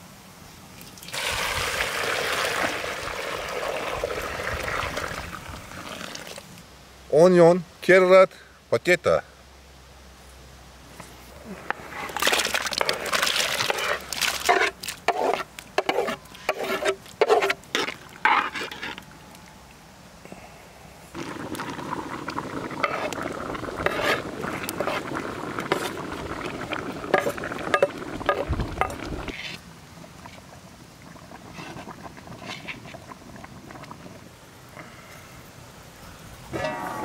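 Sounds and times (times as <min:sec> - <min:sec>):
soup boiling: 0:00.8 - 0:06.6, 0:11.4 - 0:19.5, 0:21.0 - 0:34.8
ladle stirring with knocks: 0:11.7 - 0:19.1, 0:22.8 - 0:29.6
metal spoon scraping wooden board: 0:12.8 - 0:19.0.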